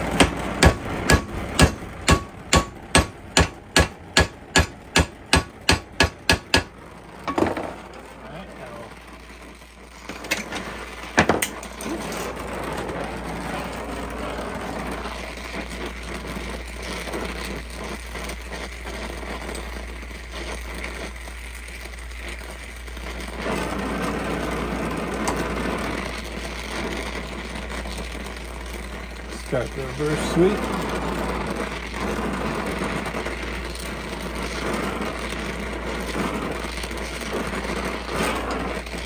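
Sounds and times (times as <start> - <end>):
gas torch flame rushing: 0.0 - 39.0
sharp metal knocks: 0.2 - 6.7.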